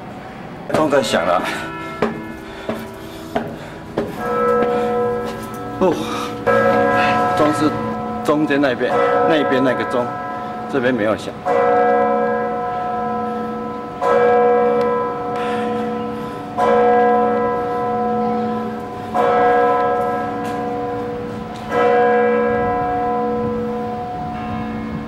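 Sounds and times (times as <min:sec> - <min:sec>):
church bell tolling: 0:00.7 - 0:25.0.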